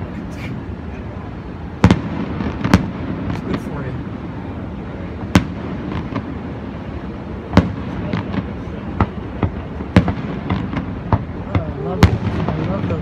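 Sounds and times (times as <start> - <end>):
background noise: 0.0 - 13.0
fireworks bangs: 1.6 - 13.0.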